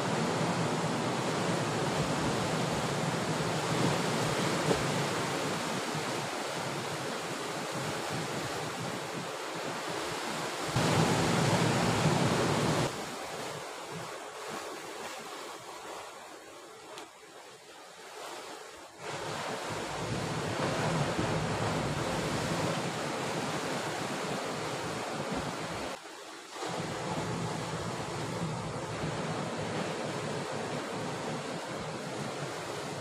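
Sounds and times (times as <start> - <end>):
waves washing against rocky shore: 0.0 - 16.5, 18.1 - 26.0.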